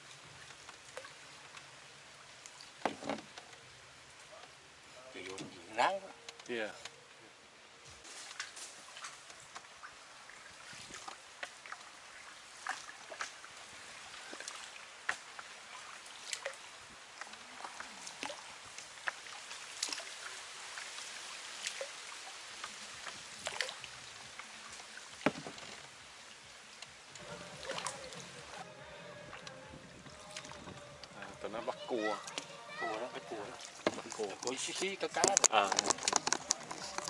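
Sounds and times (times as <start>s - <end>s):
paddle strokes in water: 0.0s - 4.6s, 8.0s - 37.0s
faint steady hiss: 0.0s - 37.0s
sharp clicks and knocks: 34.8s - 37.0s.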